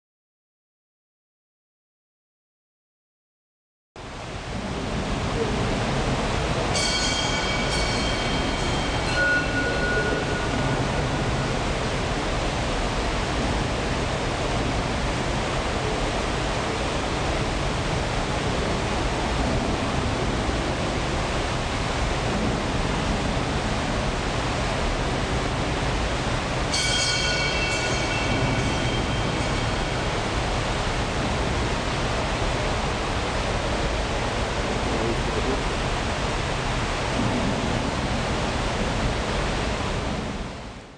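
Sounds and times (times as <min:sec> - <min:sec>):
rushing water: 0:04.0 - 0:40.9
water wheel turning: 0:05.6 - 0:14.5, 0:24.2 - 0:40.2.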